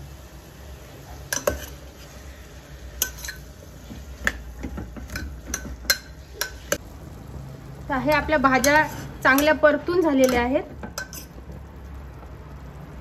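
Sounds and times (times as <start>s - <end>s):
metal spoon scraping pot: 1.3s - 2.2s, 3.0s - 6.8s, 8.1s - 11.4s.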